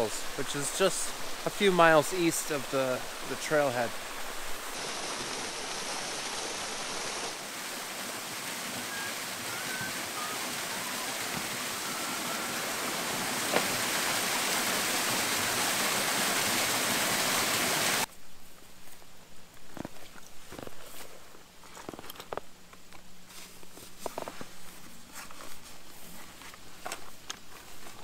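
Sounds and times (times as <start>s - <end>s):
waterfall rushing: 0.0s - 18.1s.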